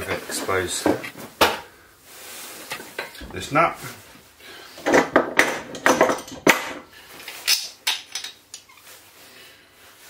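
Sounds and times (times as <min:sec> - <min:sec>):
metal hand tools clinking: 0:07.2 - 0:08.8.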